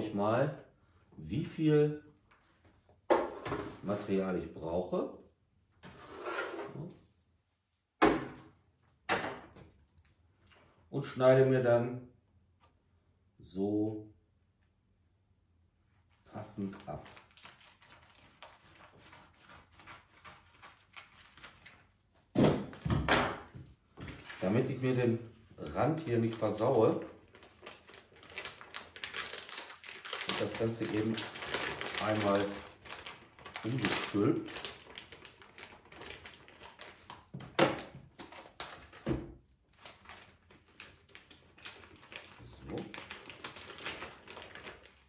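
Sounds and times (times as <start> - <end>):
plastic bag crinkling: 26.0 - 39.1, 39.7 - 45.0.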